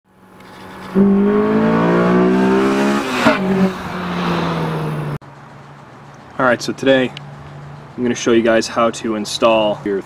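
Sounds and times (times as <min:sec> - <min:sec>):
car engine revving: 0:00.1 - 0:05.2.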